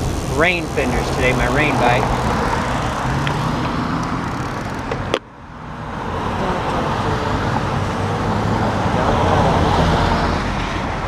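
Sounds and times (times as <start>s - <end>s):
cars passing on wet road: 1.2s - 11.0s.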